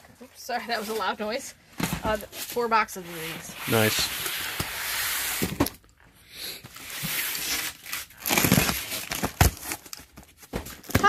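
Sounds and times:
cardboard scraping and rustling: 0.7 - 5.8, 6.7 - 11.0.

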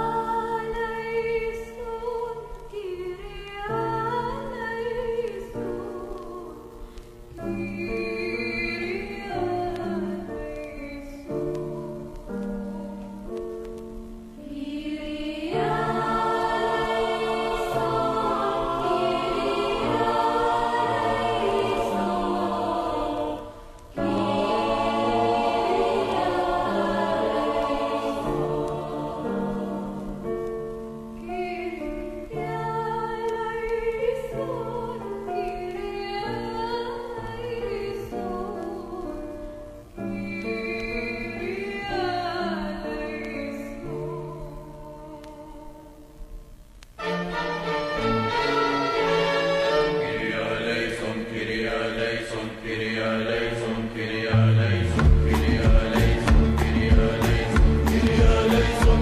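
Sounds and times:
woman singing a hymn: 0.0 - 13.2, 14.4 - 30.1, 31.2 - 46.2
mixed choir singing: 14.4 - 30.8, 47.0 - 59.0
string and accordion ensemble: 47.0 - 50.4.

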